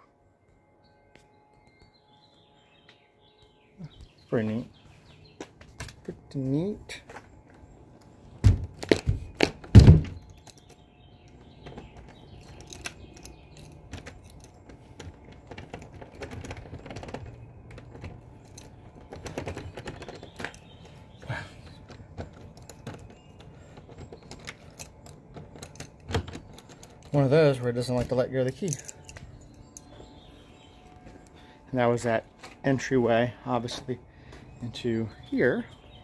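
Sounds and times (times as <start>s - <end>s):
key rattling in lock: 8.0s - 31.1s
shed door knocking: 8.4s - 10.3s.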